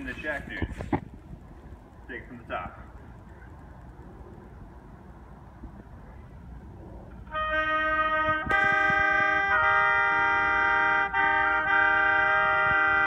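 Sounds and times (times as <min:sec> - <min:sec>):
oboes playing in harmony: 0:07.2 - 0:13.0.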